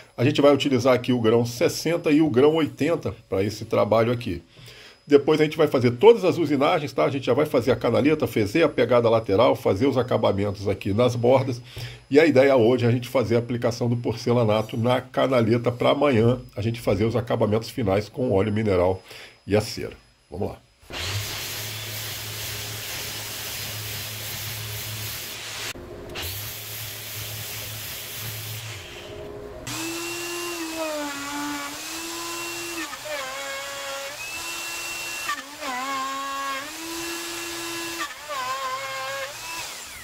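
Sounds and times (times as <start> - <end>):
router whine cutting wood: 20.8 - 40.0
orbital sander grinding: 20.9 - 40.0.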